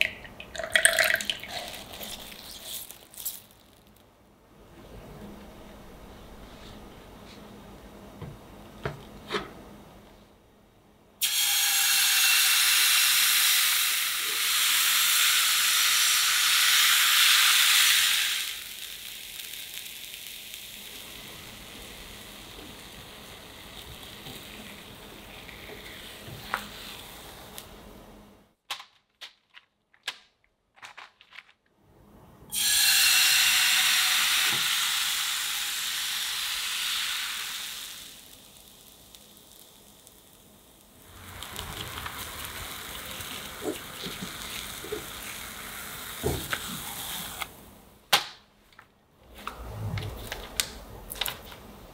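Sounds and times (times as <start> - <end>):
batter sizzling in frying pan: 11.2 - 27.7, 32.5 - 47.7.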